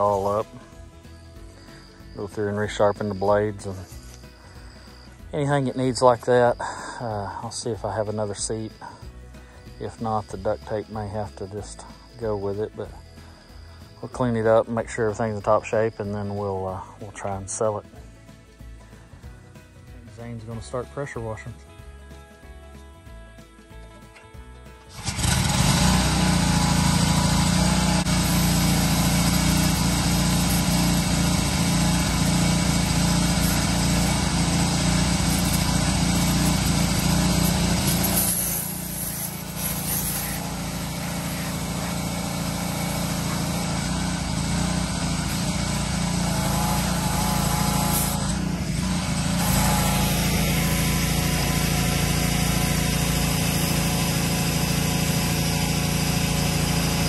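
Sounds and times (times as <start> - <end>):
pressure washer running: 0.0 - 7.2, 24.9 - 57.0.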